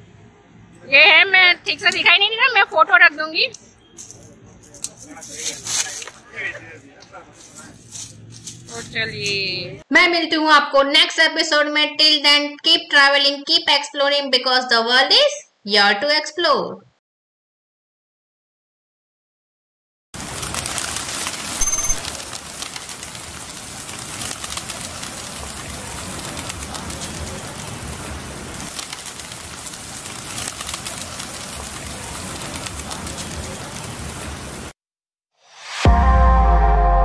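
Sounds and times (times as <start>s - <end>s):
outdoor background noise: 0.0s - 17.0s, 20.2s - 34.8s
flock of birds calling: 20.4s - 33.8s.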